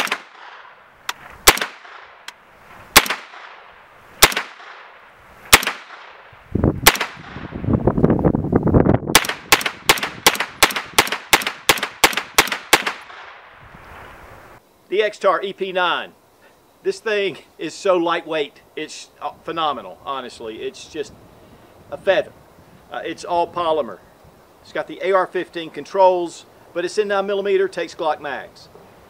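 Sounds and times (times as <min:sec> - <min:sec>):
gunshots: 0:00.0 - 0:00.8, 0:01.4 - 0:02.2, 0:02.9 - 0:06.2, 0:06.8 - 0:07.5, 0:09.1 - 0:13.4.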